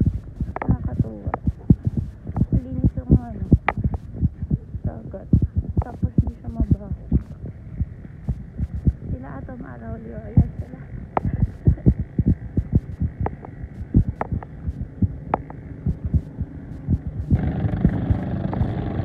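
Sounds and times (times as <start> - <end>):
wind buffeting microphone: 0.0 - 19.0
boat engines droning: 17.4 - 19.0.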